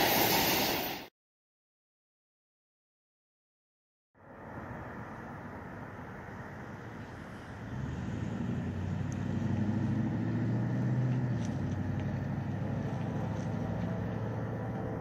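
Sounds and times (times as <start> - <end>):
vehicle engine droning: 4.2 - 15.0.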